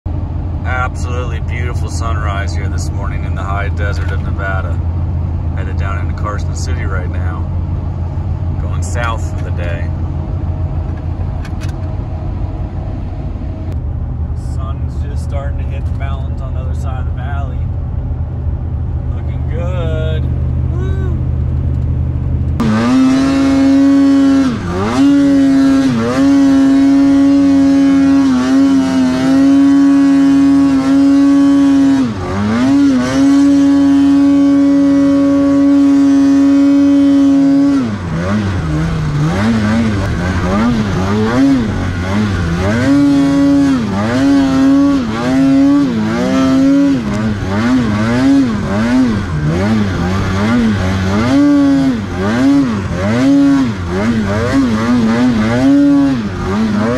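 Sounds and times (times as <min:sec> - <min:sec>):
snowmobile engine revving: 0:00.7 - 0:04.8, 0:05.6 - 0:07.4, 0:08.6 - 0:09.9, 0:22.6 - 0:56.9.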